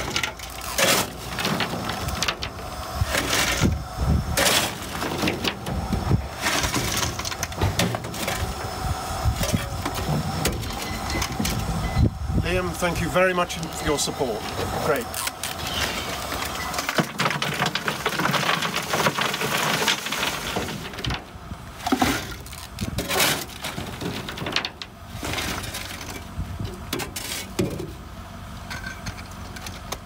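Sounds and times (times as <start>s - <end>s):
coal clinking into metal bucket: 0.0s - 3.7s, 4.4s - 5.7s
shovel scraping coal: 0.0s - 11.9s, 12.6s - 27.6s
coal lumps clattering: 0.0s - 30.0s.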